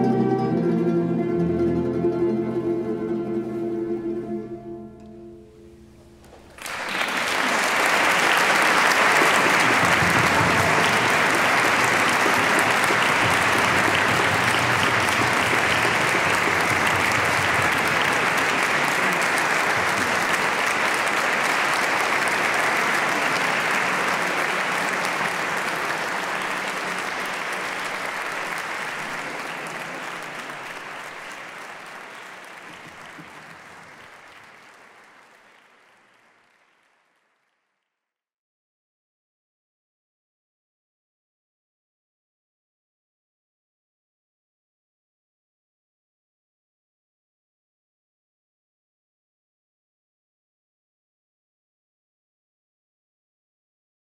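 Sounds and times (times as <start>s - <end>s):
audience applauding: 6.2s - 37.8s.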